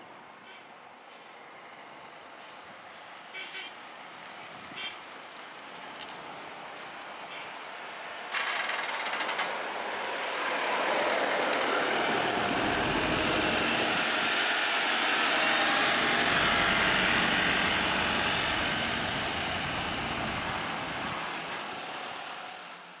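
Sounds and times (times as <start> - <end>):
diesel bus engine under load: 7.2 - 23.0.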